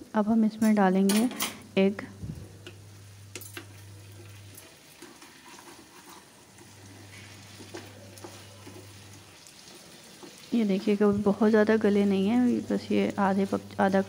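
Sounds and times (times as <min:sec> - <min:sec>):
low steady hum: 0:00.0 - 0:04.6
potatoes sizzling in oil: 0:02.5 - 0:14.0
spatula clicking and scraping: 0:02.6 - 0:11.6.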